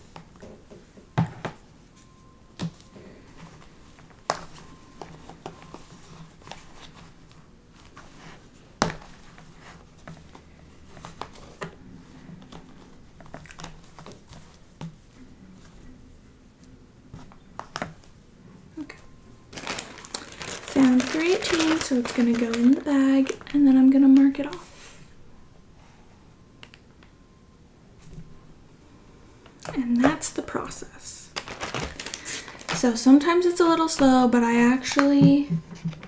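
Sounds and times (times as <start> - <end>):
faint low hum: 0.0 - 36.0
hands rustling in a box: 19.5 - 23.5.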